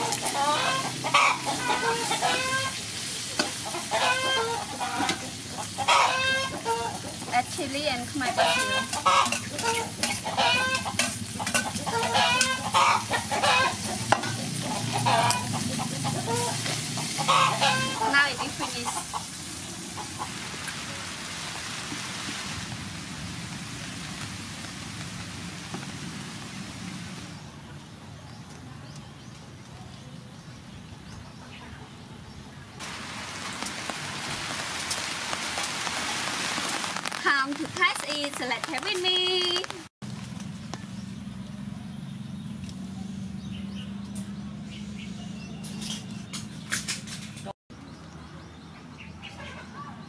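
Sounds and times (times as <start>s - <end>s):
chickens clucking: 0.0s - 20.8s
food sizzling: 0.0s - 27.4s, 32.8s - 39.9s
rain hissing on a surface: 0.0s - 27.6s, 32.8s - 40.4s
metal spatula scraping a wok: 8.5s - 12.7s, 13.3s - 18.3s.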